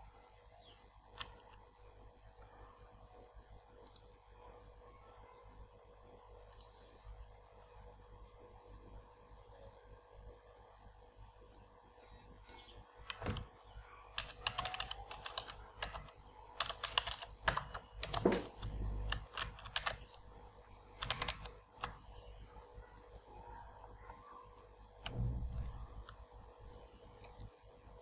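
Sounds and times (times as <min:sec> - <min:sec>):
typing on computer keyboard: 0:01.2 - 0:01.6, 0:06.5 - 0:06.8, 0:12.4 - 0:13.5, 0:14.1 - 0:20.2, 0:20.9 - 0:22.1.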